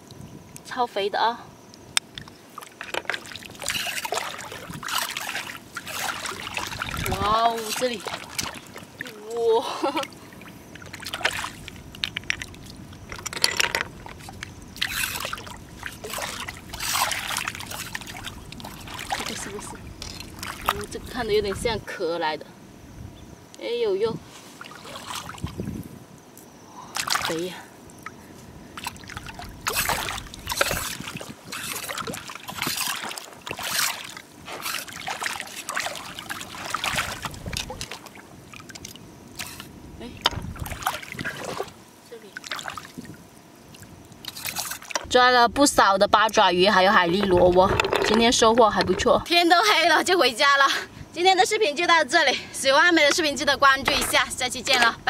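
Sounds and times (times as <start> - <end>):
seawater splashing: 2.4 - 21.8, 24.2 - 25.6, 27.0 - 45.2, 46.2 - 50.1, 53.0 - 55.0
boots sloshing through water: 2.5 - 13.2, 13.9 - 21.7, 24.4 - 25.6, 27.0 - 28.2, 28.8 - 39.7, 40.3 - 45.2.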